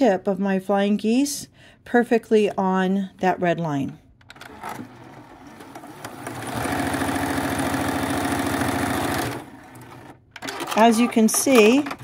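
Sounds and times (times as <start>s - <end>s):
sewing machine stitching: 4.3s - 12.0s.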